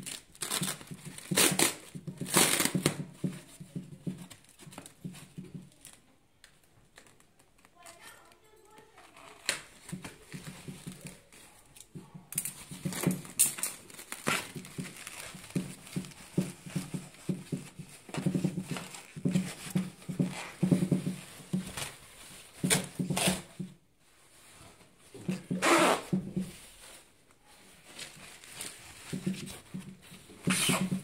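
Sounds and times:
plastic sack rustling and tearing: 0:00.0 - 0:03.0, 0:09.0 - 0:11.8, 0:12.4 - 0:31.0.

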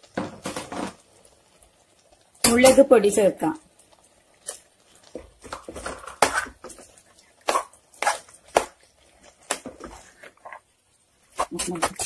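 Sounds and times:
metal spoon scraping a pot: 0:05.7 - 0:06.8.

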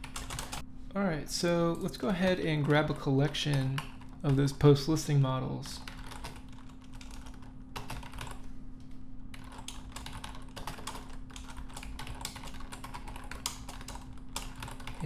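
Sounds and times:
computer keyboard typing: 0:00.0 - 0:00.6, 0:02.0 - 0:04.9, 0:05.7 - 0:08.5, 0:09.3 - 0:15.0.

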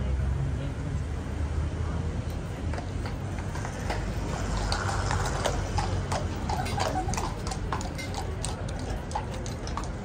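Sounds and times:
horse hooves clip-clopping on cobbles: 0:02.3 - 0:10.0.

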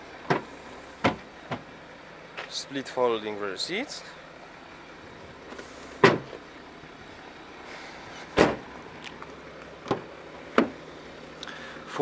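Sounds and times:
car door knocks and clicks: 0:00.3 - 0:01.7, 0:06.0 - 0:06.4, 0:08.4 - 0:08.6, 0:09.8 - 0:10.8.

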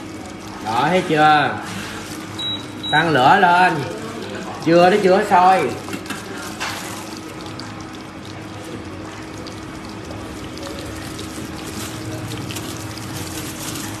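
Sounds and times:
oil sizzling and popping: 0:03.6 - 0:14.0.

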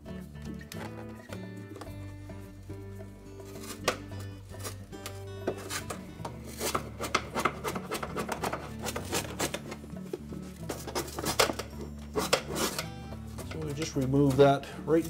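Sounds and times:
putty knife scraping metal: 0:03.4 - 0:14.4.

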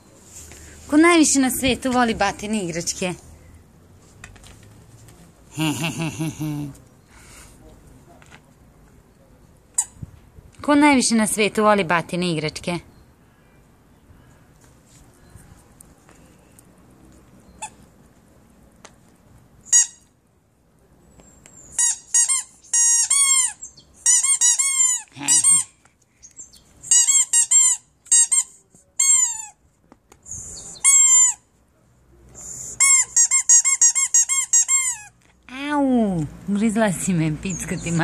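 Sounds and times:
squeaky toy ball squeaking: 0:17.5 - 0:17.8, 0:19.7 - 0:20.1, 0:21.6 - 0:25.8, 0:26.8 - 0:29.6, 0:30.3 - 0:31.5, 0:32.4 - 0:35.2.

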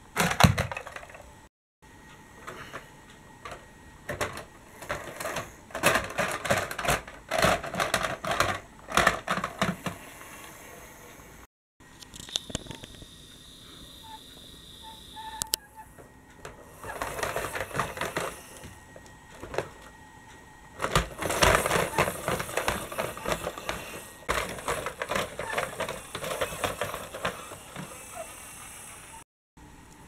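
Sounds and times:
toy vehicles clattering on wooden track: 0:00.2 - 0:01.2, 0:04.1 - 0:10.0, 0:20.8 - 0:28.3.

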